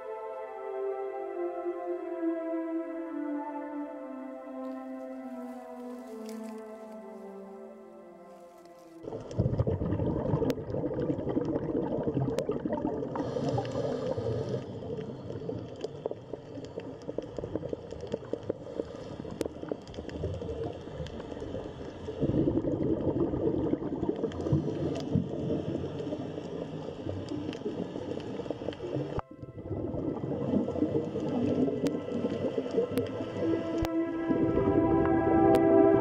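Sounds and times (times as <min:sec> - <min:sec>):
underwater bubbling and gurgling: 0:09.0 - 0:36.0.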